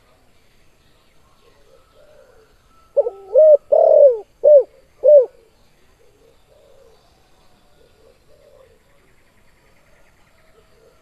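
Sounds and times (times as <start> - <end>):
dove cooing: 1.4 - 7.0, 7.8 - 8.8.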